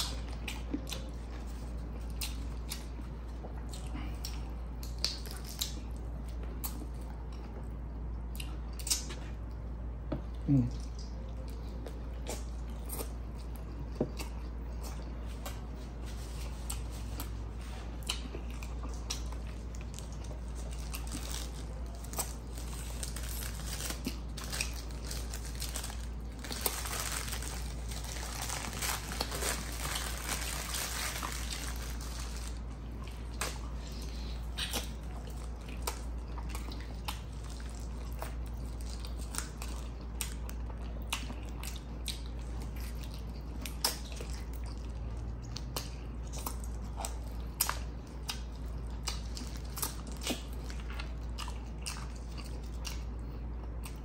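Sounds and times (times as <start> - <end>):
low steady hum: 0.0 - 54.0
person chewing and crunching food: 0.0 - 54.0.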